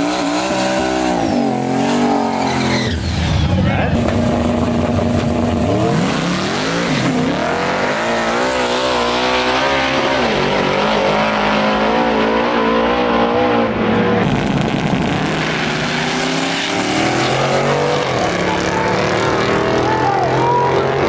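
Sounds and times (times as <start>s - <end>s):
car engine revving: 0.0s - 21.0s
drag racing cars accelerating: 0.0s - 21.0s.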